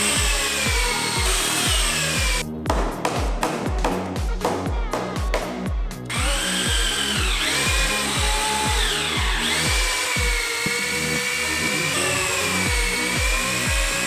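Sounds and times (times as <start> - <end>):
cordless drill whine: 0.0 - 2.4, 6.1 - 14.0
music with a steady beat: 0.0 - 14.0.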